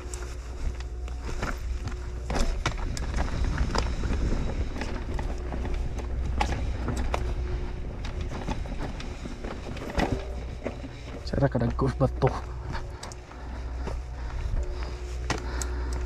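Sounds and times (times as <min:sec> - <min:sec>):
wind rumble on microphone: 0:00.0 - 0:11.0
bike rattling over bumps: 0:01.2 - 0:15.9.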